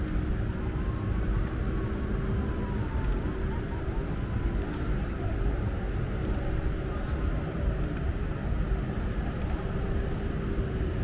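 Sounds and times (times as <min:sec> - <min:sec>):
faint voices: 0:02.5 - 0:10.2.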